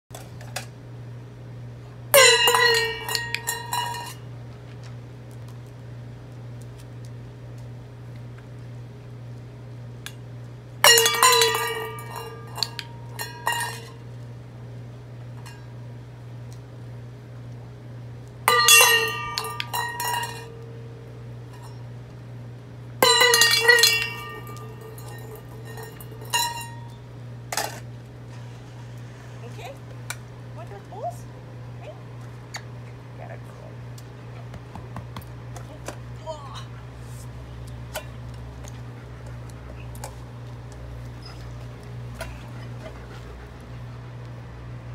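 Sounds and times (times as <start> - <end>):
bowl rattling bounces: 2.2 - 4.2, 10.8 - 14.0, 18.5 - 20.6, 23.0 - 27.0
metal bowl clanging on stone: 2.2 - 4.2, 10.9 - 14.0, 18.5 - 20.7, 23.0 - 27.0.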